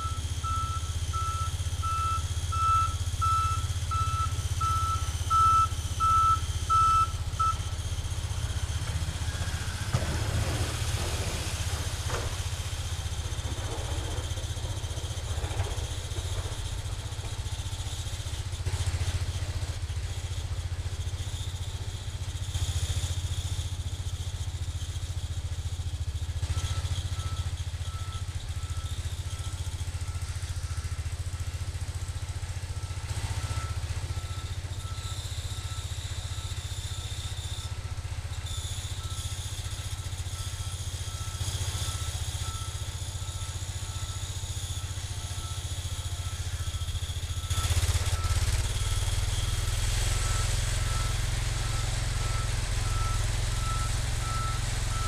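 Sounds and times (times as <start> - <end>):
reversing alarm beeping: 0.0 - 9.9, 25.1 - 55.0
garden tractor engine running: 0.0 - 55.0.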